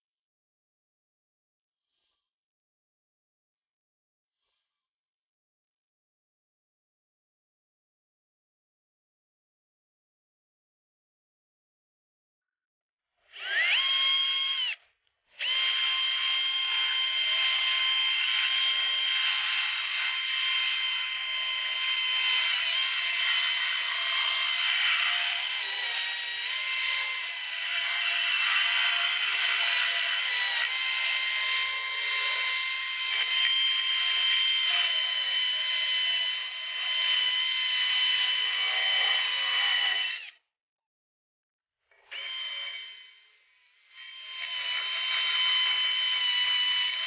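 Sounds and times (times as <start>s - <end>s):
power tool grinding whine: 13.2s - 40.4s, 41.9s - 47.0s.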